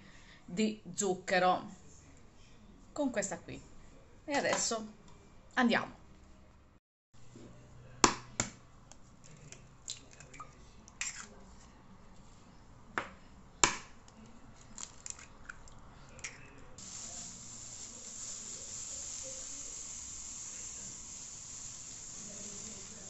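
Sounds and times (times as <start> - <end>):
eggs cracking against bowl: 13.6 - 16.6
sugar pouring into bowl: 16.8 - 23.0.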